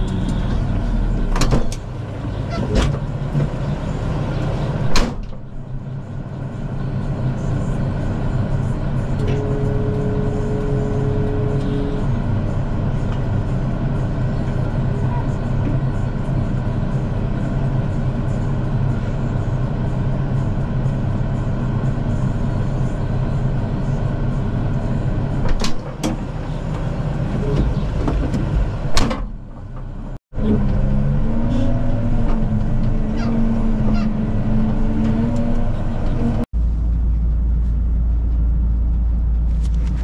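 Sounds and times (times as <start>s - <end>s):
deep steady rumble: 0.0s - 40.0s
tractor engine running: 0.0s - 40.0s
wavering whine: 5.6s - 12.9s.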